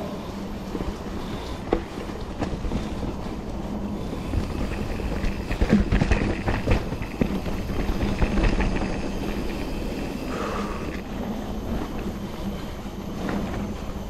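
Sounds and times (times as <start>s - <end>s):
bike tyres rumbling on dirt: 0.0s - 14.0s
bike knocks and rattles: 0.6s - 11.0s.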